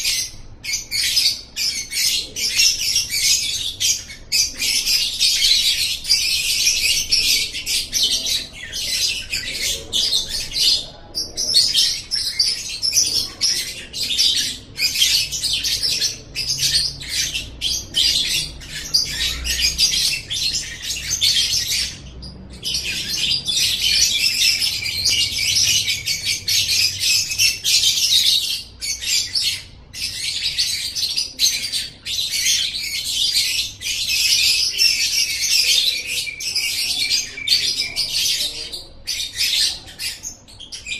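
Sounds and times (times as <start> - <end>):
lovebird chattering song: 0.0 - 40.9.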